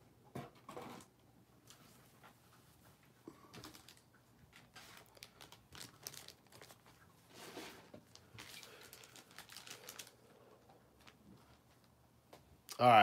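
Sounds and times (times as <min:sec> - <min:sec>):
plastic wrappers rustling: 0:03.3 - 0:12.0.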